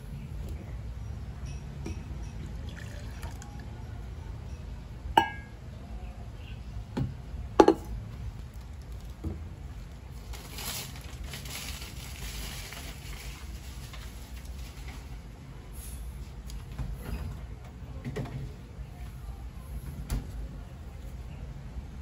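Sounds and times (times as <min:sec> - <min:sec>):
coffee pouring into glass mug: 0:02.3 - 0:03.7.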